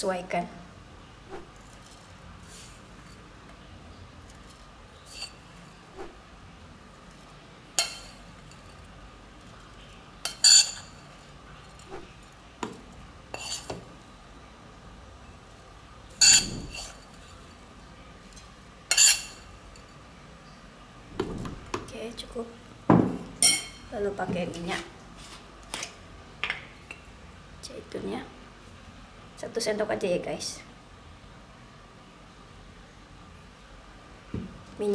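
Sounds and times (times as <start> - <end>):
spoon clinking against bowls: 10.2 - 11.1, 23.4 - 23.9.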